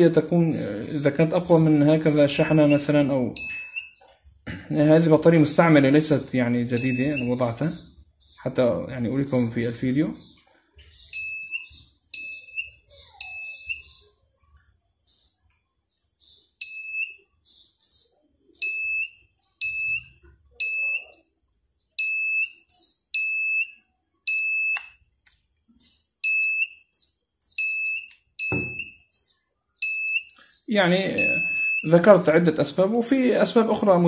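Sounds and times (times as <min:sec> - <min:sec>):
metal detector beeping: 0:02.3 - 0:04.1, 0:06.8 - 0:07.4, 0:11.1 - 0:14.0, 0:18.6 - 0:21.2, 0:22.0 - 0:22.6, 0:23.2 - 0:25.0, 0:26.2 - 0:26.9, 0:27.6 - 0:29.0, 0:29.8 - 0:30.3, 0:31.2 - 0:32.0.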